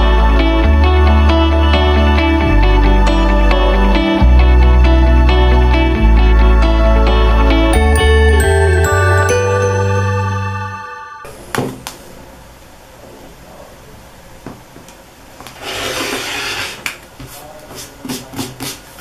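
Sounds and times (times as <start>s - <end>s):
background music: 0.0s - 11.4s.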